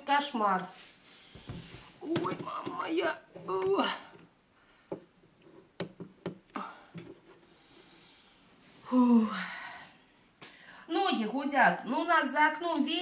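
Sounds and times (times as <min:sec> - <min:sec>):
phone handling clicks and knocks: 0:05.7 - 0:07.2.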